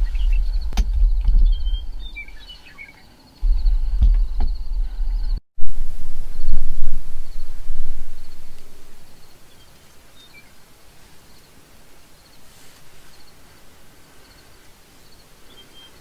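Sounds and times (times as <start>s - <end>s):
low rumble: 0.0s - 2.5s, 3.4s - 9.3s
gliding bird chirps: 0.0s - 3.8s.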